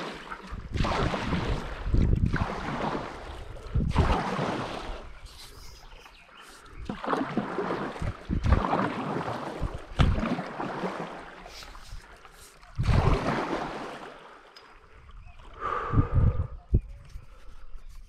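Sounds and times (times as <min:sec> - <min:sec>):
paddle strokes in water: 0:00.0 - 0:15.9.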